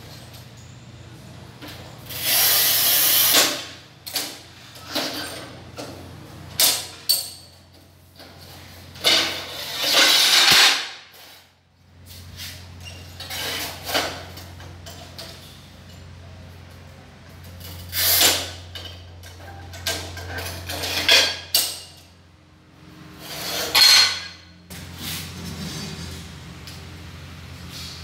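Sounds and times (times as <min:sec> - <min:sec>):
tile cutter scraping tile: 0:09.1 - 0:11.4, 0:13.2 - 0:14.2, 0:23.2 - 0:24.4.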